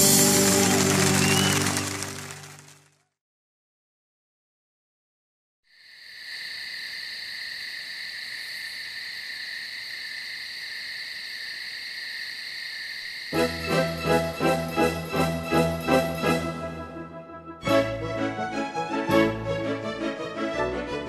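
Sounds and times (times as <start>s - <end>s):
music: 0.0s - 3.0s, 13.4s - 21.0s.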